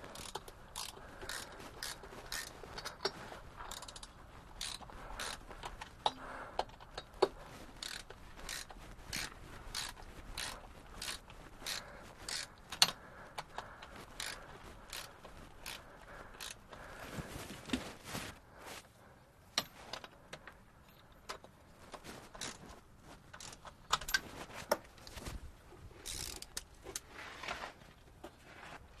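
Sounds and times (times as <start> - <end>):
ratchet spanner clicking: 0.1 - 5.4, 7.8 - 13.6, 14.2 - 15.8, 22.4 - 22.6, 26.0 - 27.0.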